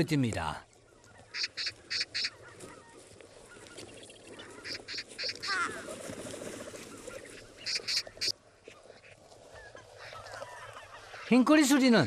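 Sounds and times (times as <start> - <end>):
birds calling harsh notes: 0.0 - 12.0
rising bird call: 1.0 - 6.0
wings rustling and scuffling: 1.0 - 11.5.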